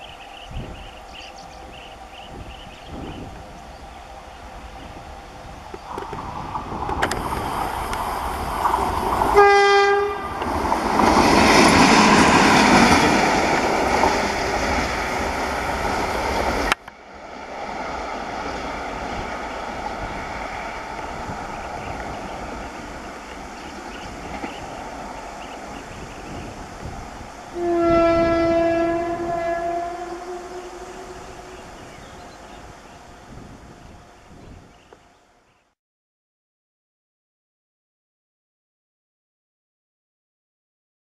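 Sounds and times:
locomotive rumble: 0:00.0 - 0:34.6
wheel and rail noise: 0:00.0 - 0:35.4
locomotive horn blast: 0:09.3 - 0:10.5, 0:27.5 - 0:31.8.

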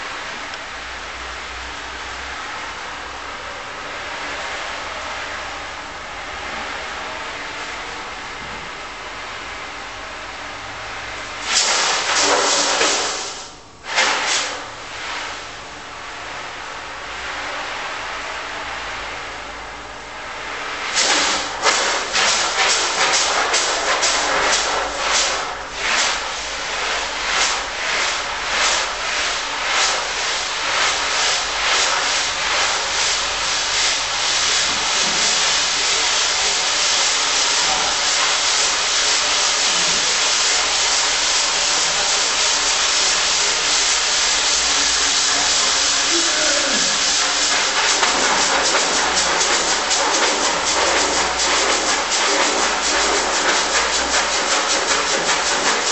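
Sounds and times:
harsh hissing noise: 0:11.4 - 0:55.9.

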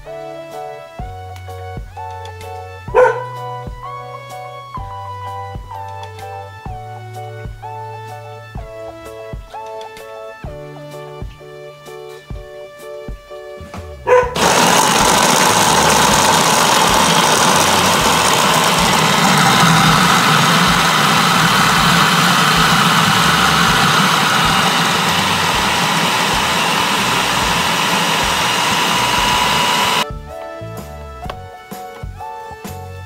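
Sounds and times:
soft music: 0:00.0 - 0:14.3, 0:30.0 - 0:33.0
food processor running: 0:14.4 - 0:30.0.

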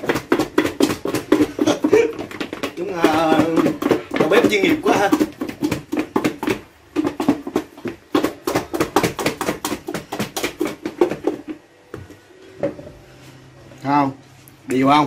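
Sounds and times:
food thudding in shaken plastic container: 0:00.0 - 0:11.5.

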